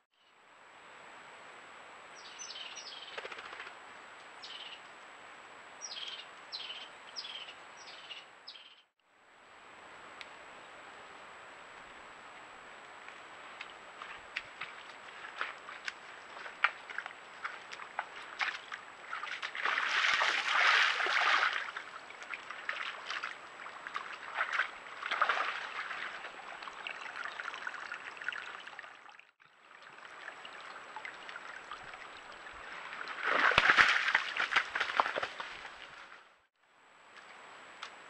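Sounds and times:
squelching steps in mud: 13.6 - 26.7, 32.9 - 36.1
splashing and sloshing in water: 13.6 - 36.3.

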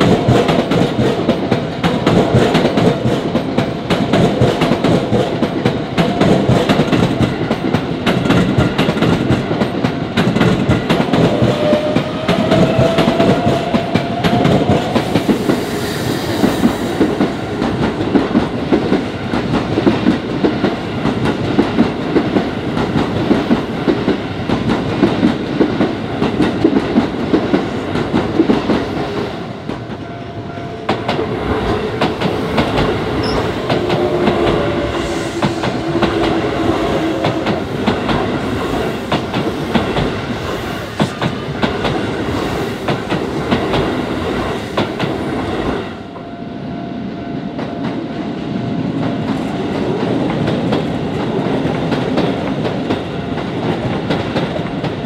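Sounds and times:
train wheels clacking over rails: 0.0 - 46.3, 47.3 - 55.0
crossing warning bell ringing: 29.8 - 31.1, 33.1 - 38.0.

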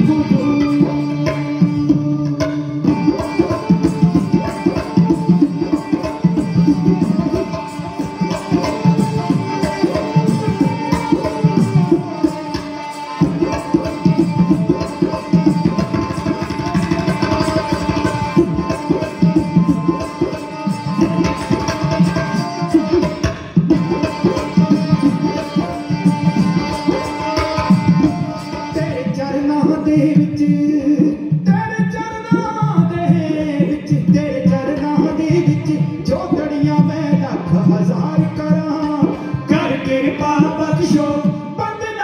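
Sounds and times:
bowed string melody: 0.0 - 29.7
hand drums: 0.0 - 42.0.

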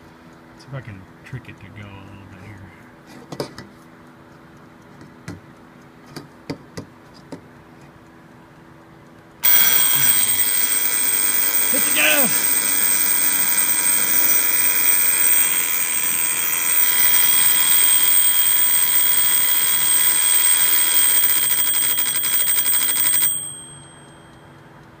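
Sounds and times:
alarm clock bells ringing: 9.4 - 24.6.

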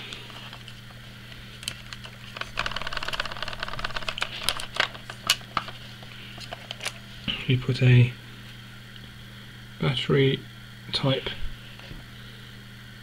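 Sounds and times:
plastic camera clicking and rattling: 1.6 - 5.8.

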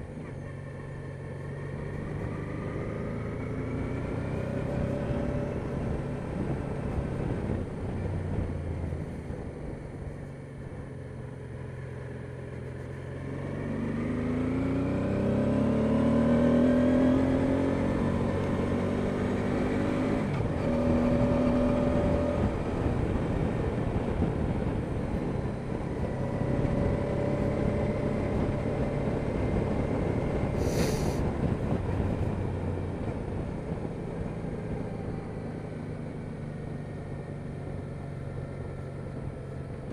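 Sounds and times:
motorcycle engine revving: 0.0 - 9.4, 11.3 - 32.9
wind and road noise: 0.0 - 39.9.

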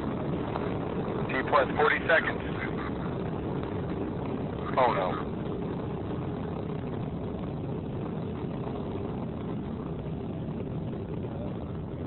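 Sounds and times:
rocket roar: 0.0 - 12.0.

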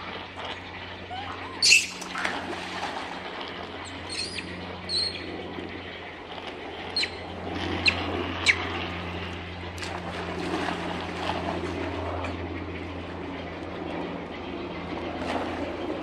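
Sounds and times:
steady low hum: 0.0 - 16.0
water splashing: 1.2 - 5.1.

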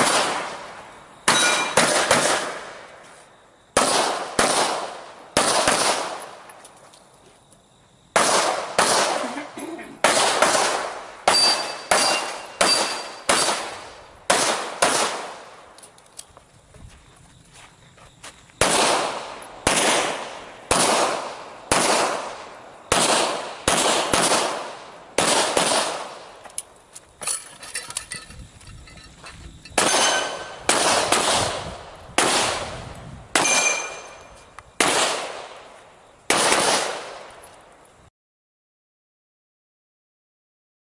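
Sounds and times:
handgun shots: 1.3 - 2.6, 10.0 - 13.7, 29.8 - 31.5, 33.4 - 34.2.

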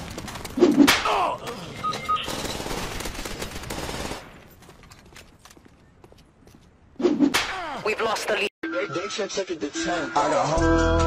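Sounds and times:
gunshots: 2.2 - 4.4.

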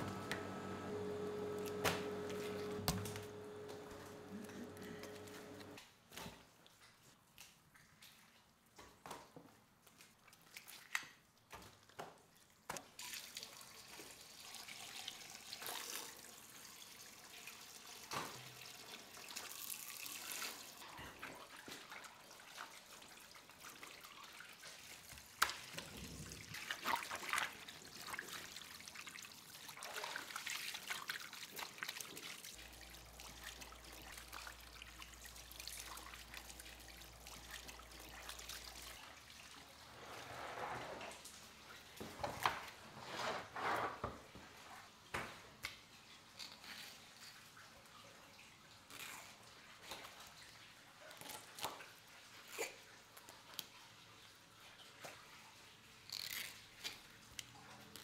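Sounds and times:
water running and splashing: 13.0 - 40.1
water drips: 17.2 - 39.6.

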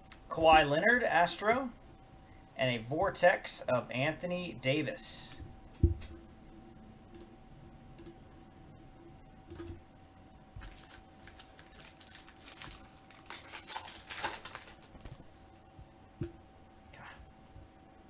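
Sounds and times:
faint steady hum: 0.0 - 18.0
foil wrapper tearing and crinkling: 10.6 - 15.2.

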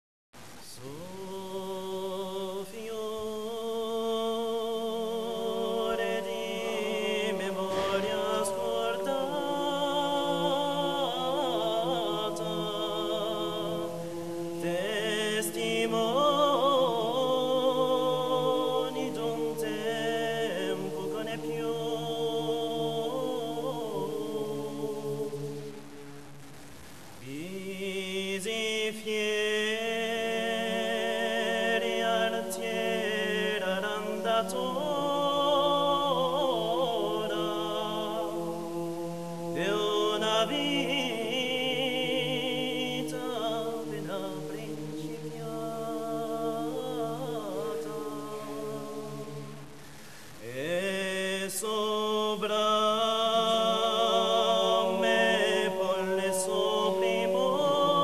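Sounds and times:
men singing in harmony: 0.8 - 25.8, 27.2 - 49.7, 50.4 - 58.0.

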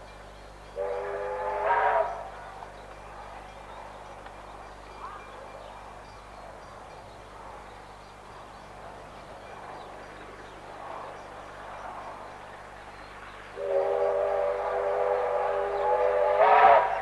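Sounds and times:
distant train running: 0.0 - 17.0
steam locomotive whistle: 0.8 - 2.6, 13.6 - 17.0.

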